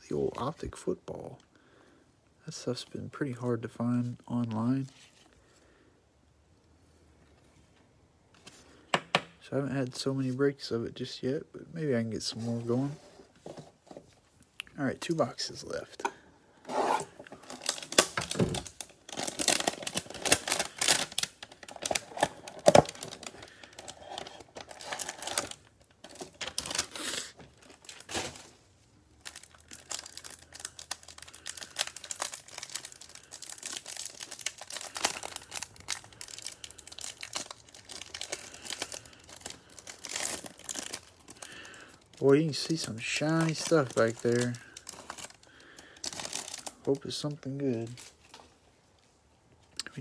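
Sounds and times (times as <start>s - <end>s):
plastic wrapper crinkling: 17.0s - 49.8s.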